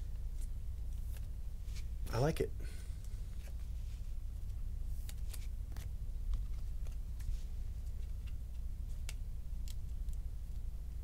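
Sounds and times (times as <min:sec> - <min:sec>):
low steady hum: 0:00.0 - 0:11.0
plastic card sleeve rustling: 0:04.4 - 0:09.1.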